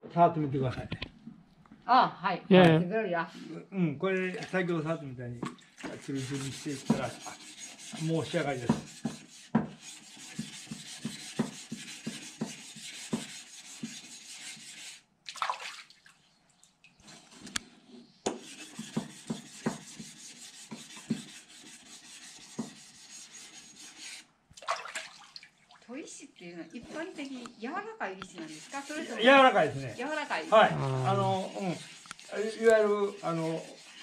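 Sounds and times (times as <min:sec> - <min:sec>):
blade scraping on whetstone: 0:05.8 - 0:15.0, 0:18.3 - 0:24.3, 0:28.3 - 0:34.0.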